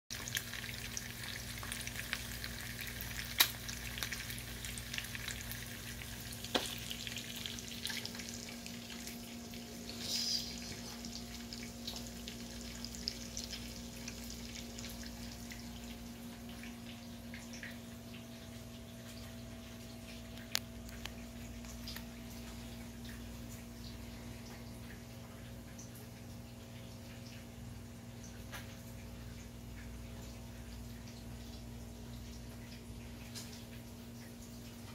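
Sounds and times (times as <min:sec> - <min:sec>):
food sizzling in a pan: 0:00.2 - 0:15.4
low steady hum: 0:00.2 - 0:34.9.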